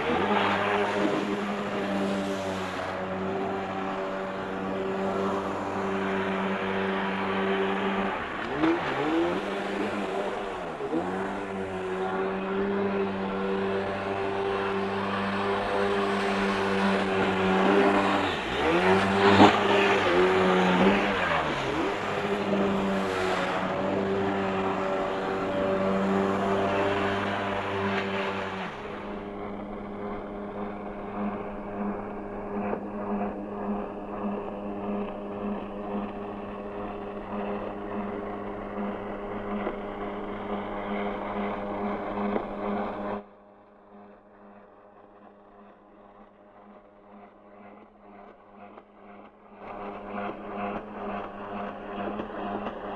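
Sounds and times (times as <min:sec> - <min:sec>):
dull jet ski engine drone: 0:00.0 - 0:52.9
jet ski engine running hard: 0:00.0 - 0:52.9.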